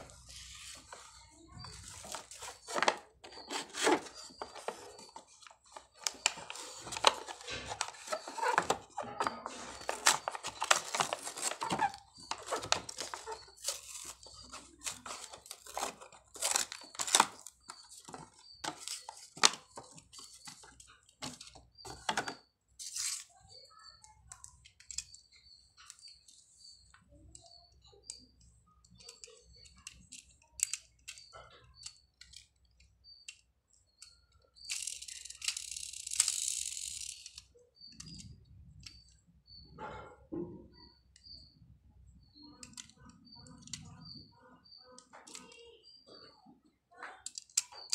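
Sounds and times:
plastic packaging tearing: 0:09.6 - 0:17.8
plastic toy clicks and taps: 0:27.3 - 0:39.0, 0:45.0 - 0:45.7, 0:47.1 - 0:47.9.

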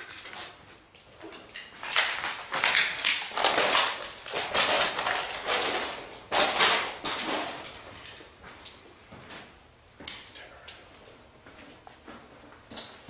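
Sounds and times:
footsteps crunching over debris: 0:00.1 - 0:09.5.

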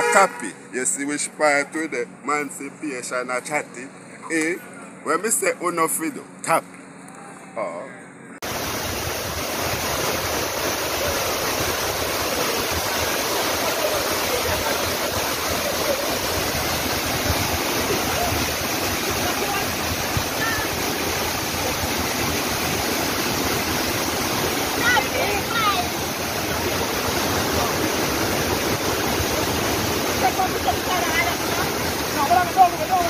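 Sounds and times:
waterfall rushing into pool: 0:08.4 - 0:33.0.

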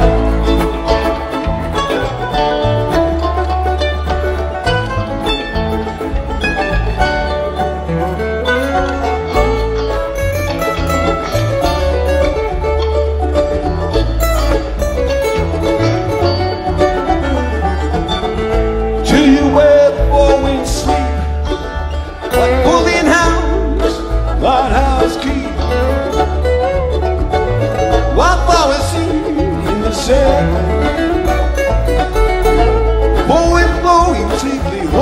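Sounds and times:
bass line: 0:00.0 - 0:35.0
live band instrumental: 0:00.0 - 0:35.0.

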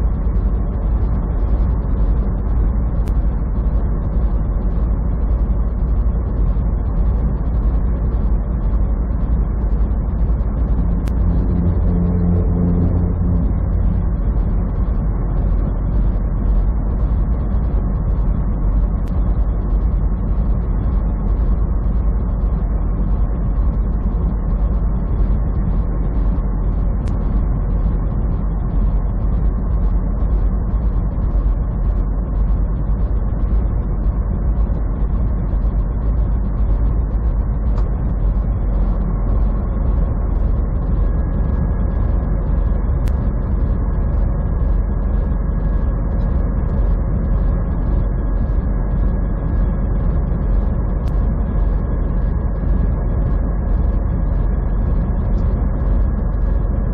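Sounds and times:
road noise: 0:00.0 - 0:31.2
truck engine drone: 0:00.0 - 0:56.9.

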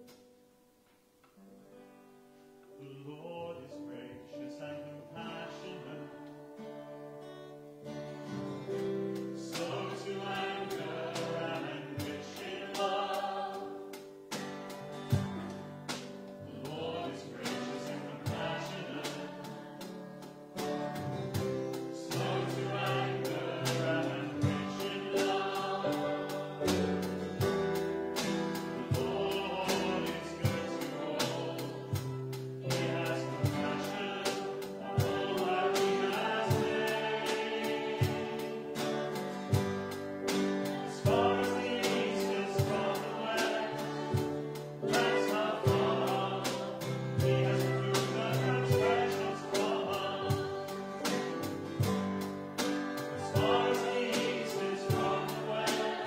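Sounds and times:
congregation singing a worship song: 0:02.7 - 0:56.0
strummed guitar: 0:05.5 - 0:56.0
violin: 0:40.4 - 0:52.3.

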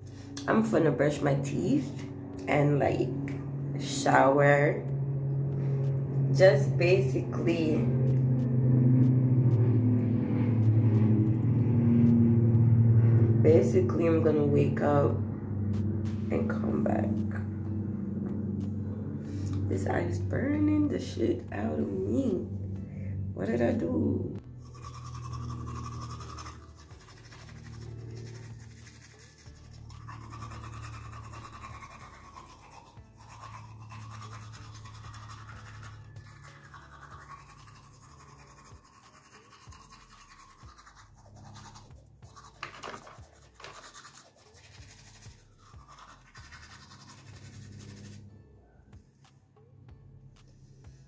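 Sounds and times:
soft background music: 0:00.0 - 0:51.0
toothbrush scrubbing teeth: 0:24.5 - 0:48.3.

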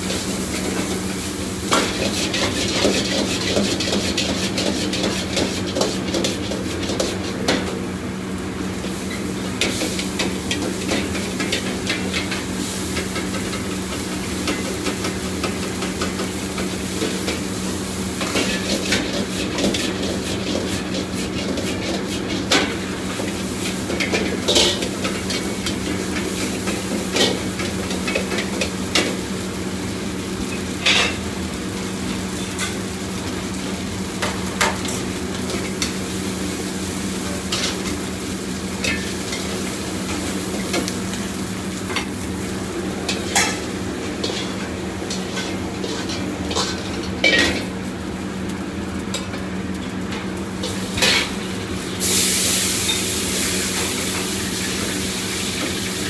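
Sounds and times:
food sizzling in a wok: 0:00.0 - 0:56.0
kitchen equipment humming: 0:00.0 - 0:56.0.

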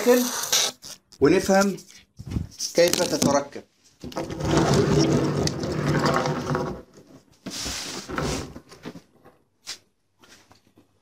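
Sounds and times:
cabinet scraping: 0:04.0 - 0:09.0
caster wheels rumbling on tabletop: 0:04.1 - 0:07.0.

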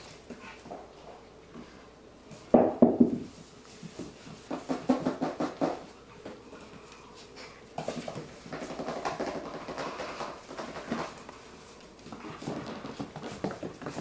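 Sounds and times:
puppies scuffling on wooden floor: 0:05.8 - 0:14.0.

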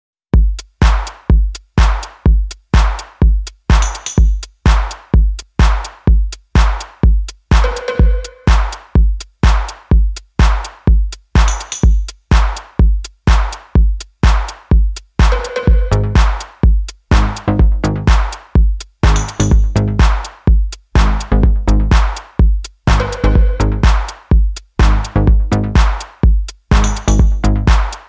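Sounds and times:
drum machine kick drum: 0:00.3 - 0:28.0
clicky percussion hits: 0:06.8 - 0:09.0, 0:11.4 - 0:12.2, 0:15.2 - 0:18.1, 0:19.0 - 0:20.0, 0:22.9 - 0:24.1, 0:26.7 - 0:27.8
high percussion flourishes: 0:07.5 - 0:09.8, 0:15.2 - 0:17.8, 0:19.0 - 0:20.1, 0:22.9 - 0:24.2
held synth tone: 0:07.6 - 0:08.5.

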